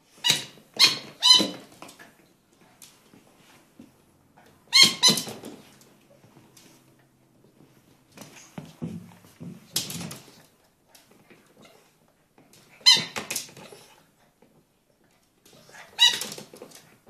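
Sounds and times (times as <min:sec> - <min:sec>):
rubber squeak toy squeaking: 0:00.2 - 0:01.8, 0:04.7 - 0:05.4, 0:12.8 - 0:13.3.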